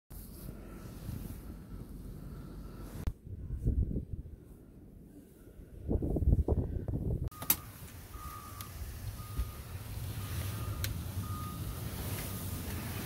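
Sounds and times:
reversing alarm beeping: 0:07.3 - 0:13.0
low engine rumble and hiss: 0:07.4 - 0:13.0.

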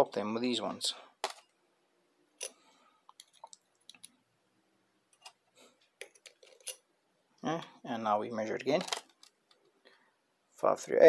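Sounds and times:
metal parts clicking and tapping: 0:06.0 - 0:06.8.

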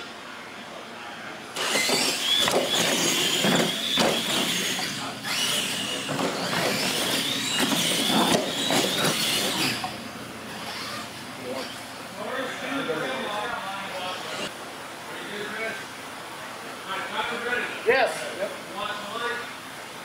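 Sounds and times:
toy truck motor whine: 0:01.6 - 0:11.8.

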